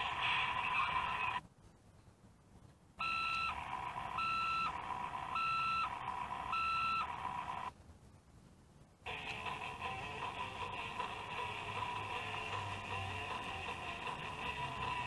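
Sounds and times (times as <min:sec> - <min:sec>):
toy electronic beeps: 0:03.0 - 0:07.7
steady electronic hum: 0:03.0 - 0:07.8, 0:09.1 - 0:15.0.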